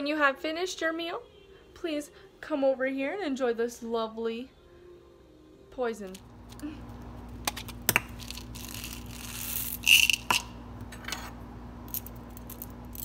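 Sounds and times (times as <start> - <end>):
candies rattling into plastic cup: 7.6 - 10.4.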